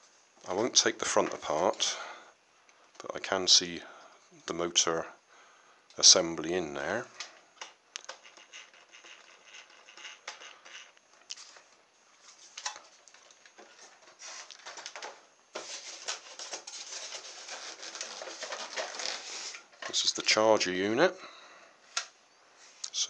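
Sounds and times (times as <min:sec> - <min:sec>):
plastic scraping against foam: 0:15.6 - 0:19.7.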